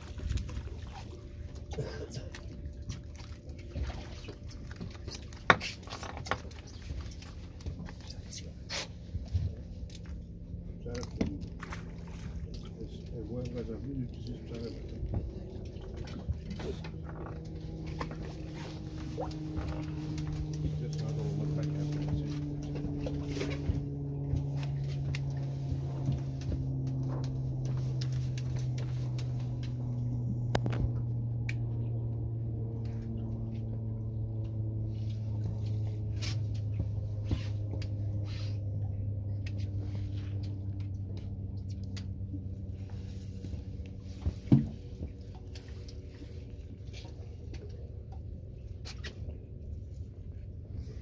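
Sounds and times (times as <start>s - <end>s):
boat engine idling: 0.0s - 51.0s.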